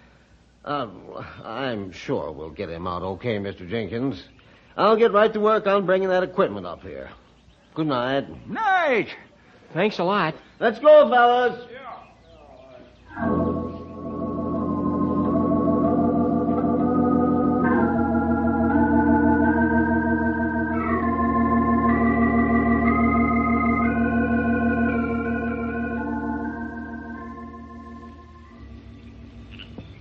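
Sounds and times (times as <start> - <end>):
organ chords with vibrato: 13.0 - 30.0.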